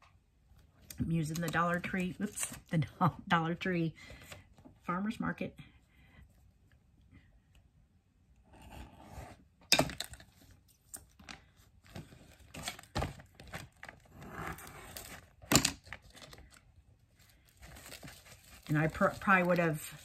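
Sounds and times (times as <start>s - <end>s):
paper rustling and tearing: 17.3s - 20.0s.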